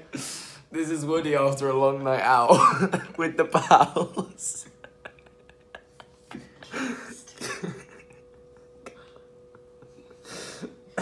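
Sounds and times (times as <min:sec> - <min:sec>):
faint steady hum: 0:00.0 - 0:11.0
person coughing: 0:02.5 - 0:03.2.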